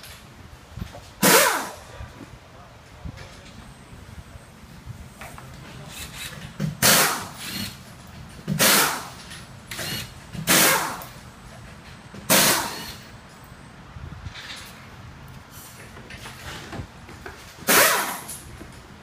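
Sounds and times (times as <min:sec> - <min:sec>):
air tool bursts: 0:01.2 - 0:01.9, 0:05.9 - 0:07.8, 0:08.5 - 0:11.1, 0:12.3 - 0:13.0, 0:17.7 - 0:18.4.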